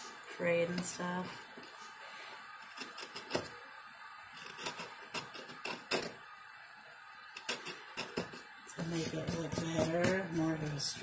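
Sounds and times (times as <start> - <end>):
craft knife scraping and clicking: 2.6 - 3.5, 4.4 - 6.2, 7.4 - 8.4.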